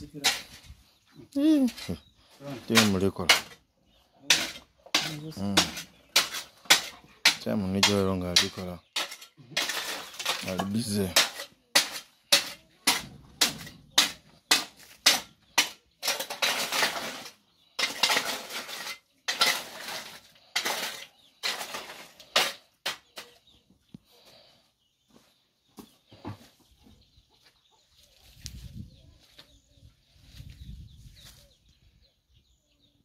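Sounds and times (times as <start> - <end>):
stone scraping on stone: 4.2 - 23.4
stones clattering together: 4.3 - 23.4.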